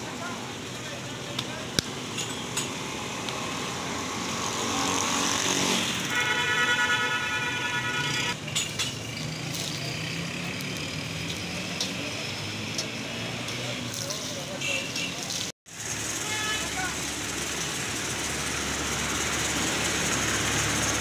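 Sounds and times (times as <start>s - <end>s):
vehicle horn: 6.1s - 8.4s, 14.6s - 15.2s, 16.2s - 16.9s
oil sizzling on iron griddle: 8.6s - 9.9s.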